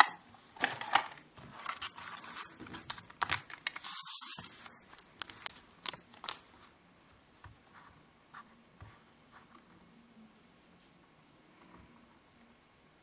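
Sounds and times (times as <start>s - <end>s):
packaging rustling: 0.6s - 6.7s.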